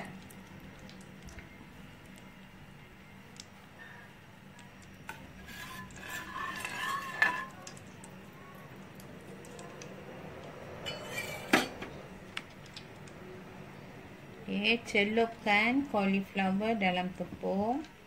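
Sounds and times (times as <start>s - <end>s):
metal spoon scraping a steel pot: 5.1s - 7.6s, 10.8s - 11.8s.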